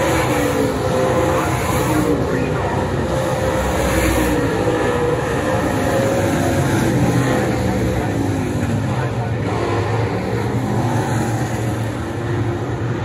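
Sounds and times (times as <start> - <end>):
race car engine running hard: 0.0 - 13.0.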